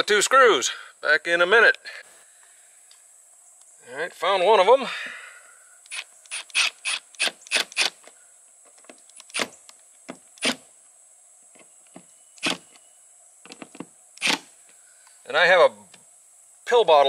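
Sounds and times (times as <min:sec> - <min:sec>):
cordless driver bursts: 0:05.9 - 0:08.0, 0:14.2 - 0:14.5.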